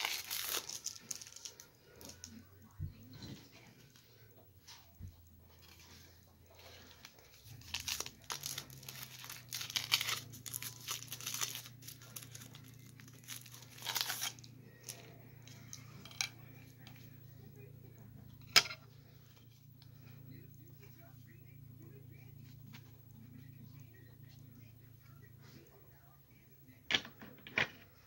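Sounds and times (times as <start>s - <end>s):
plastic rustling and crinkling: 0.0s - 2.8s, 4.6s - 17.0s
low steady hum: 0.0s - 28.0s.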